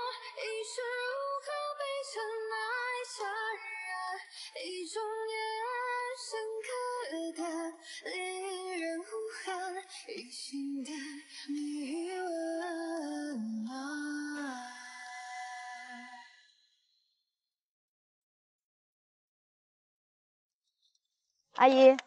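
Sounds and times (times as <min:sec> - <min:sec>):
woman singing: 0:00.0 - 0:16.3.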